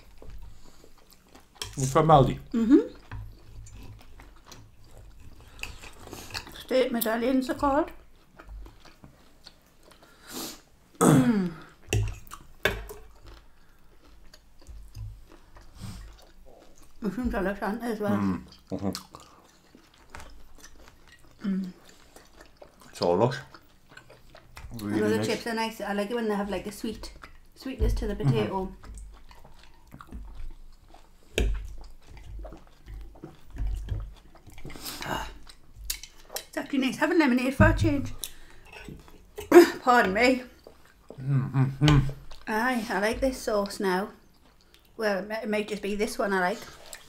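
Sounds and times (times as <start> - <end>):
person clearing throat: 11.0 - 11.6
person breathing: 38.2 - 38.8.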